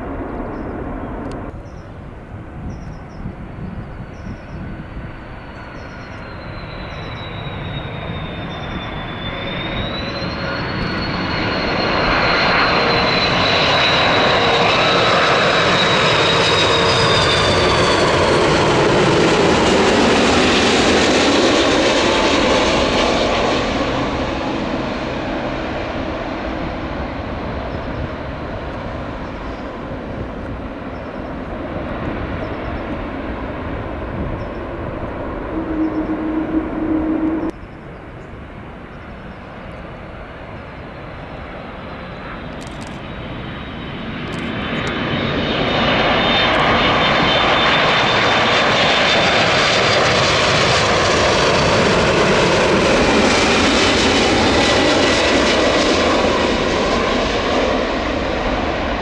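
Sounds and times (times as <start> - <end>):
jet airliner engines roaring: 0.0 - 59.0
whining engine tone: 4.1 - 37.6
short hum: 35.0 - 37.5.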